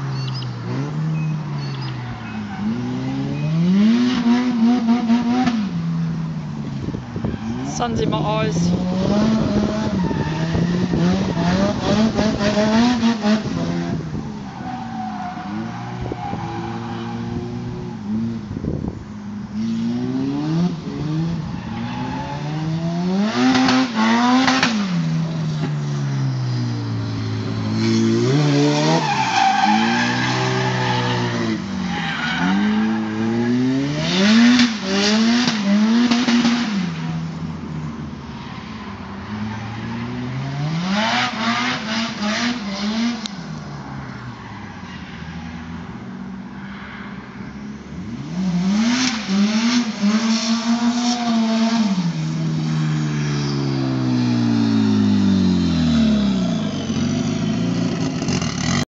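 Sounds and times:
car engine revving: 0:00.0 - 0:07.9, 0:08.5 - 0:18.9, 0:19.5 - 0:38.1, 0:39.3 - 0:44.5, 0:47.5 - 0:58.9
tyre squeal: 0:00.1 - 0:03.6.

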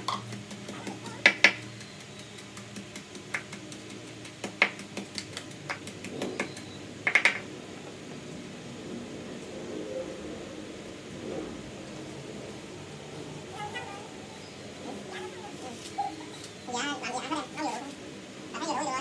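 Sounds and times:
wooden pestle pounding in mortar: 0:00.0 - 0:01.7.

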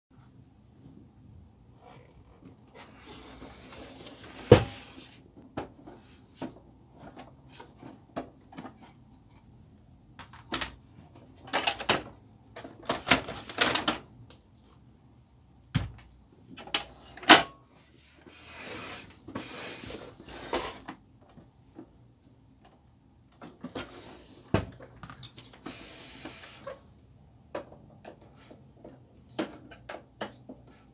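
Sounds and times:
plastic rubbing and sliding: 0:01.7 - 0:08.8, 0:25.5 - 0:26.9.

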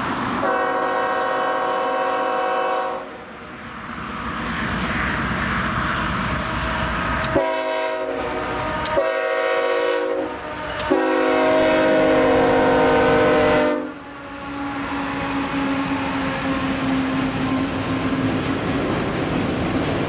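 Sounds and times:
train running noise: 0:00.0 - 0:20.0
locomotive air horn blasts: 0:00.4 - 0:03.2, 0:07.2 - 0:16.6.

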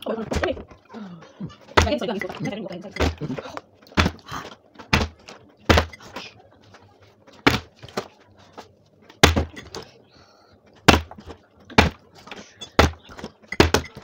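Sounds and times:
sharp knocks and thuds: 0:01.8 - 0:02.1, 0:03.9 - 0:06.0, 0:07.4 - 0:08.1, 0:09.2 - 0:09.9, 0:10.8 - 0:14.0.

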